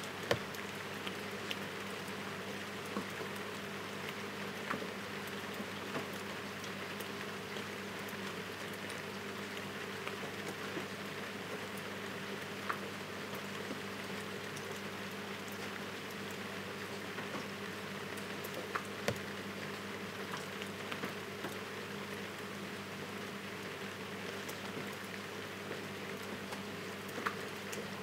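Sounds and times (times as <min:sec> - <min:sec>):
raindrops ticking: 0:00.0 - 0:02.1.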